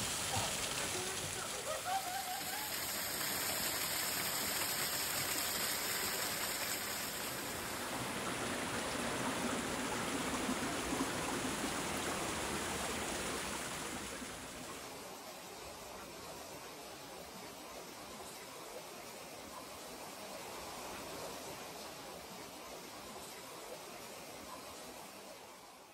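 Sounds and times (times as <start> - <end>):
water rushing over rocks: 0.0 - 15.8.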